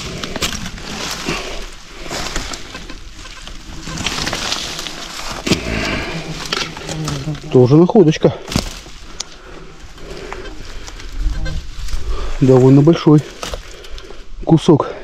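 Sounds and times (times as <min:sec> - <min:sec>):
wire crackling and snapping: 0:00.0 - 0:07.8, 0:08.4 - 0:11.2
leaves and brush rustling: 0:00.0 - 0:14.9.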